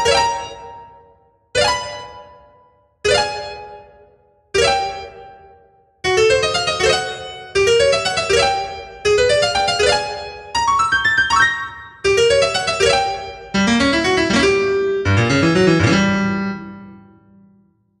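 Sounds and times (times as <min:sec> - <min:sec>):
solo keyboard music: 0:03.1 - 0:04.0, 0:06.0 - 0:17.7.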